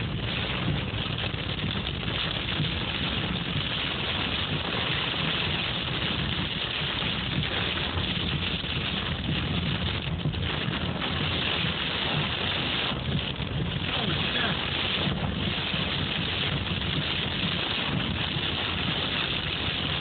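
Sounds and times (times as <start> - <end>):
hail pelting car roof: 0.0 - 20.0
low rumble: 0.0 - 20.0.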